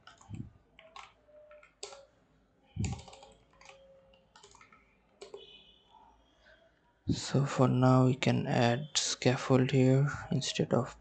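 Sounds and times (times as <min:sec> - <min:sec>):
keyboard typing: 0:00.0 - 0:02.1, 0:02.8 - 0:05.5.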